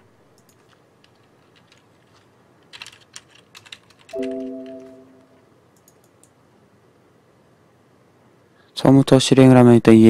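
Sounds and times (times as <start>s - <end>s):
keyboard and mouse clicks: 0.4s - 6.4s
computer alert chime: 4.2s - 5.4s.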